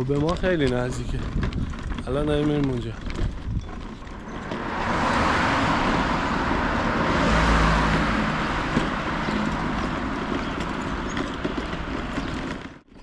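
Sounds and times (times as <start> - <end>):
car passing by: 4.1 - 12.6.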